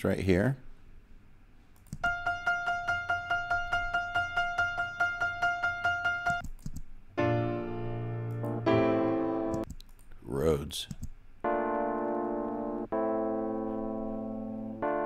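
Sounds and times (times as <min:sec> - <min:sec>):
sustained keyboard chord: 0:02.0 - 0:06.4, 0:07.2 - 0:09.6, 0:11.4 - 0:15.0.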